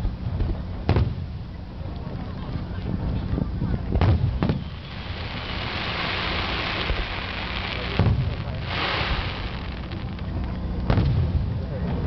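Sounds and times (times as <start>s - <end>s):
firework bang: 4.0s - 11.4s
firework hiss: 4.2s - 10.6s.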